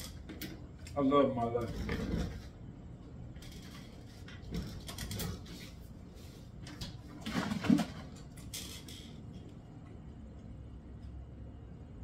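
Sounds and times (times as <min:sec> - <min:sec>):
plastic jug clicks and rustles: 0:06.7 - 0:08.5.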